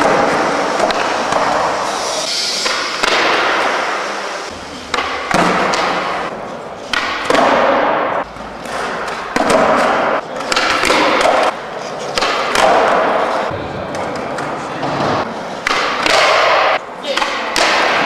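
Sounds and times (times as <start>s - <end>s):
skateboard clacks and thuds: 6.9s - 13.3s, 13.9s - 18.0s.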